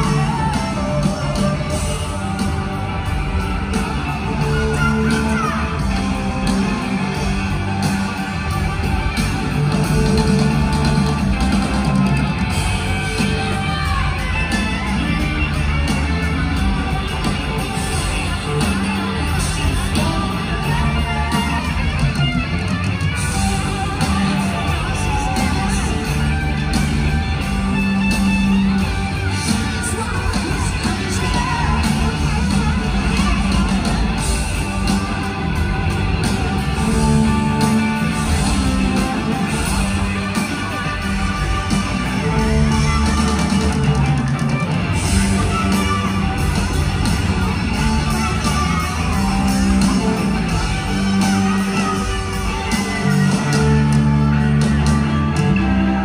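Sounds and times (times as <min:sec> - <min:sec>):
person singing: 0:00.0 - 0:07.4, 0:17.4 - 0:22.3
electric guitar: 0:00.0 - 0:56.0
live rock band playing: 0:00.0 - 0:56.0.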